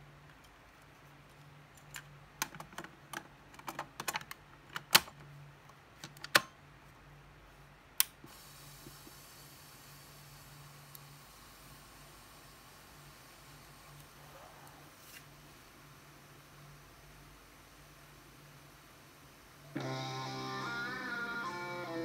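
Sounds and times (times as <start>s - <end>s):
cassette plastic clicks: 1.8s - 5.3s, 6.0s - 6.6s
tape player hiss: 8.0s - 22.0s.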